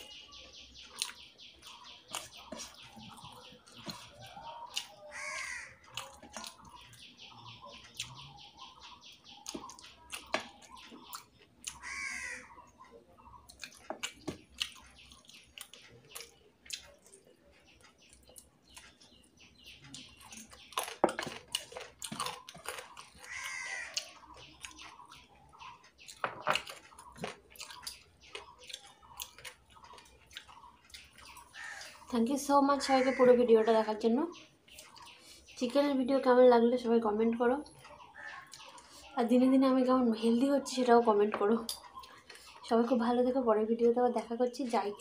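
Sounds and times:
birds calling: 0.0s - 45.0s
chewing and lip smacks: 0.8s - 5.0s, 5.8s - 7.0s, 7.8s - 11.8s, 12.7s - 32.0s
crow cawing: 5.0s - 5.8s, 11.8s - 12.6s, 23.2s - 24.0s, 31.6s - 32.0s, 32.9s - 33.4s.

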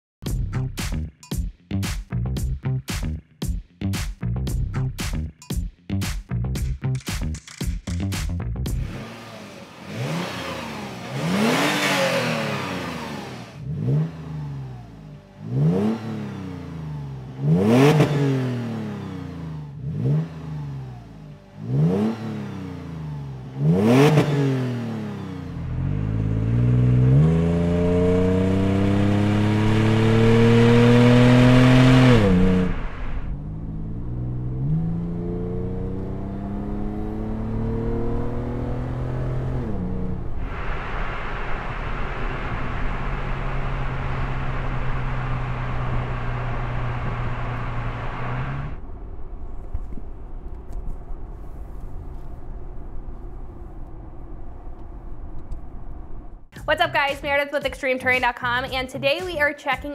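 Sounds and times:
road rumble: 6.4s - 59.9s
car engine revving: 8.6s - 57.1s
car accelerating with gear changes: 8.7s - 56.5s.

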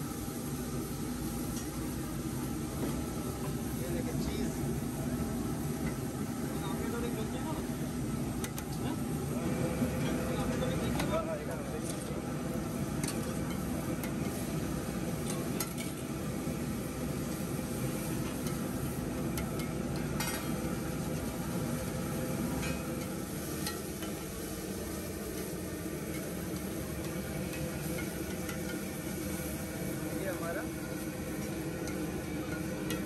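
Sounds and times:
eggs sizzling on a griddle: 0.0s - 33.0s.

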